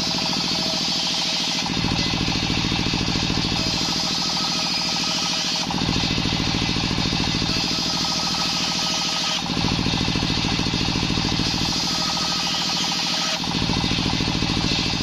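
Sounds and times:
small engine pulsing: 0:00.0 - 0:15.0
circular saw ripping wood: 0:11.3 - 0:15.0.

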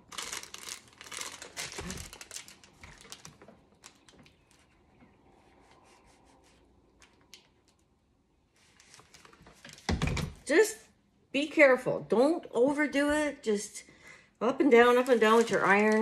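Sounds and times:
mesh crinkling and ticking: 0:00.0 - 0:05.2, 0:05.8 - 0:09.9, 0:14.8 - 0:16.0.

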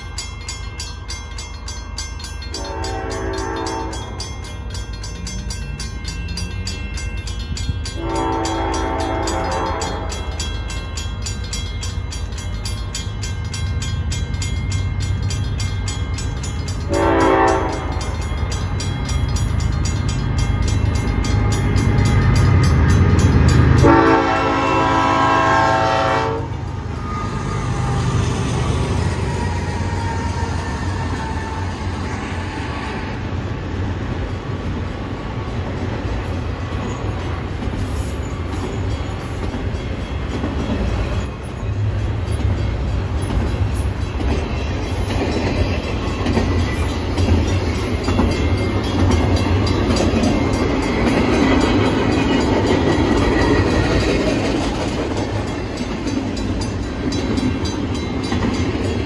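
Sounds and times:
rail cars rolling past: 0:00.0 - 0:59.0
train air horn: 0:02.6 - 0:04.2, 0:08.0 - 0:10.4, 0:16.9 - 0:18.0, 0:23.7 - 0:28.3.

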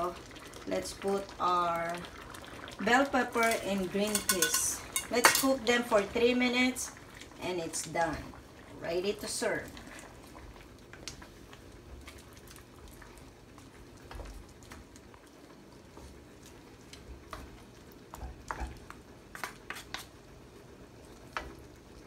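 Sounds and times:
stew sizzling in a wok: 0:00.0 - 0:22.0
utensils tapping a wok: 0:03.4 - 0:05.6.

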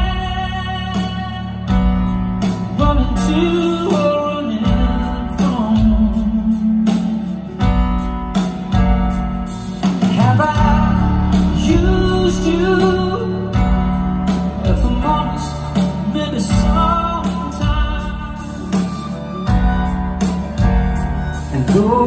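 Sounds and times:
man singing: 0:00.0 - 0:07.6, 0:10.0 - 0:19.6, 0:21.3 - 0:22.0
bass guitar: 0:00.0 - 0:22.0
keyboards: 0:00.0 - 0:22.0.

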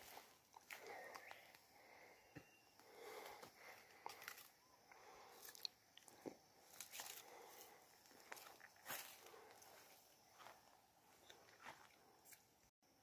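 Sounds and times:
sugarcane crunching bites: 0:04.0 - 0:04.5, 0:05.3 - 0:09.2.

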